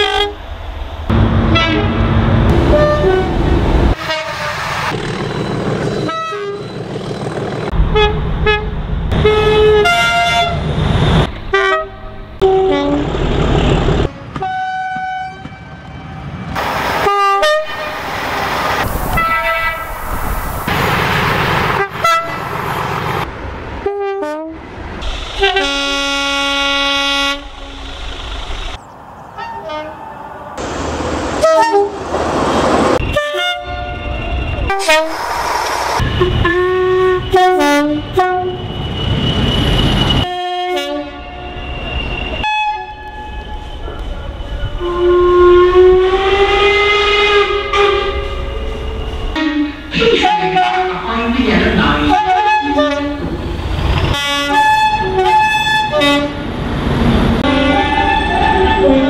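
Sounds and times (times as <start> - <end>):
train running noise: 0.0 - 59.0
train horn blasts: 1.1 - 3.4, 4.0 - 4.6, 6.1 - 6.7, 7.9 - 10.6, 11.5 - 13.1, 14.1 - 16.0, 17.0 - 18.0, 23.8 - 24.6, 25.4 - 27.8, 31.4 - 32.0, 33.0 - 35.2, 36.0 - 38.8, 40.1 - 41.6, 42.3 - 53.2, 54.1 - 56.4, 57.4 - 59.0.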